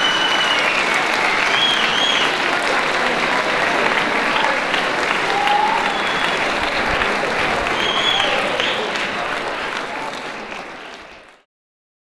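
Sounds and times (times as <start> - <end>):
crowd cries: 0.0 - 9.6
audience applauding: 0.0 - 11.5.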